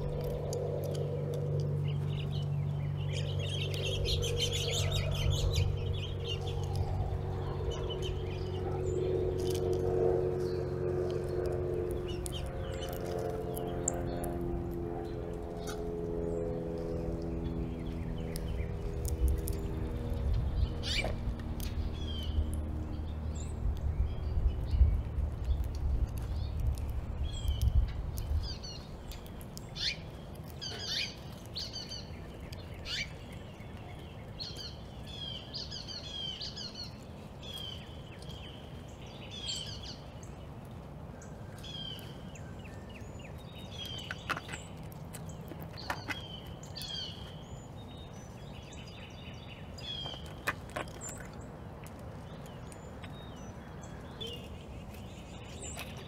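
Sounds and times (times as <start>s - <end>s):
low rumble: 0.0s - 29.8s
birds chirping: 0.0s - 56.0s.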